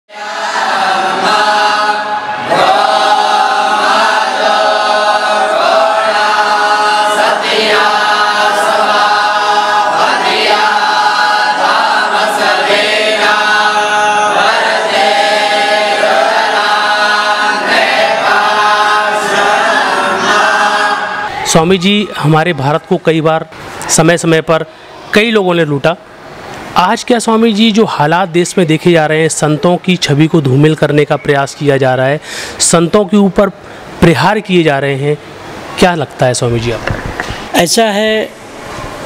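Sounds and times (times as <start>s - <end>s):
boys chanting a hymn: 0.1s - 23.0s.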